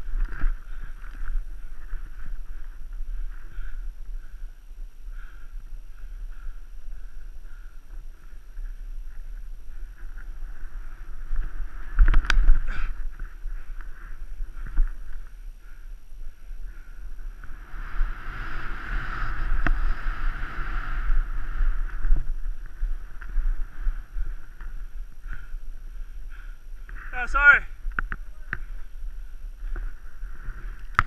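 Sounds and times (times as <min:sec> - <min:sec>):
wind buffeting microphone: 0:00.0 - 0:31.0
snow hissing under skis: 0:17.6 - 0:21.6.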